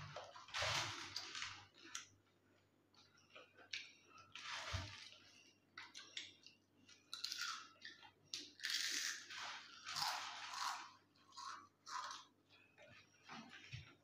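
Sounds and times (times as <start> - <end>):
chips being crunched: 8.6 - 9.3.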